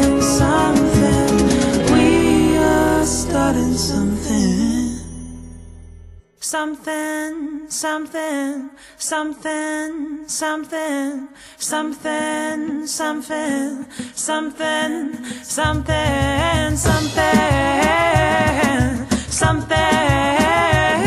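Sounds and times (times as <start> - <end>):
bass line and beat: 0.0 - 4.3, 15.7 - 21.0
voices singing: 0.0 - 5.1, 15.9 - 21.0.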